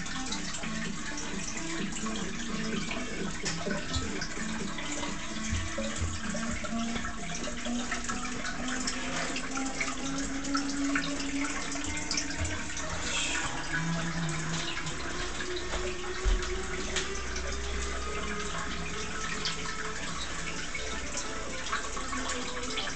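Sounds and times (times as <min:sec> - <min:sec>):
water drips and splashes: 0:00.0 - 0:22.9
water trickling into trough: 0:00.0 - 0:22.9.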